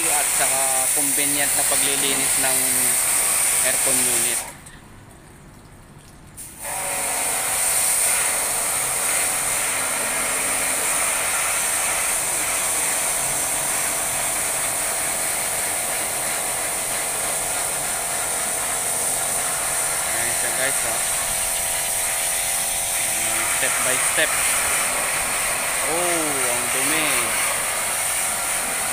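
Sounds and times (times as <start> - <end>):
pressure washer spray hissing: 0.0 - 4.5, 6.4 - 28.9
machine humming: 9.4 - 12.4.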